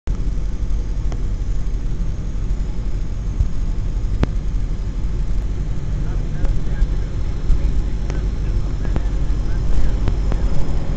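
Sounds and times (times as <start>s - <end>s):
light plane engine drone: 0.1s - 10.9s.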